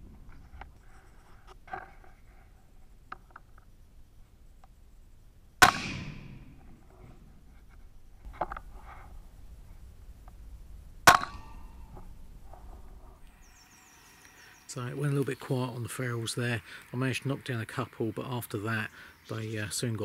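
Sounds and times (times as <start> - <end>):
air rifle shot: 5.6 - 6.7, 11.0 - 11.7.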